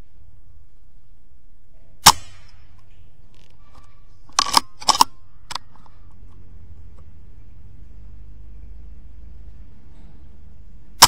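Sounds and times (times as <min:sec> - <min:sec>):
air rifle shot: 0:02.0 - 0:02.7
rifle action clacking: 0:04.3 - 0:05.9.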